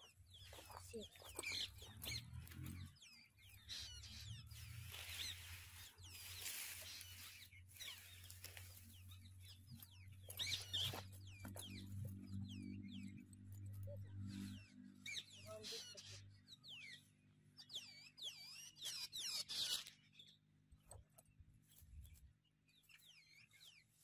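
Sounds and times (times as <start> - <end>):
birds chirping: 0.0 - 24.0
rustle of cut fodder: 4.5 - 8.9.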